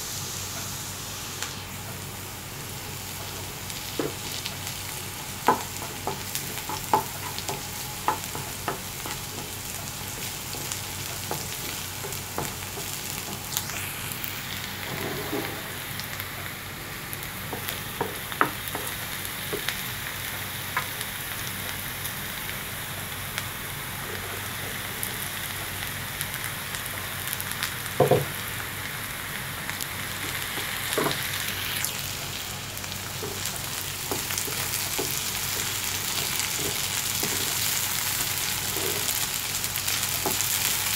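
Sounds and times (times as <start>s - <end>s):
onions sizzling in oil: 0.0s - 40.9s
wooden spatula scraping a pan: 14.7s - 16.1s.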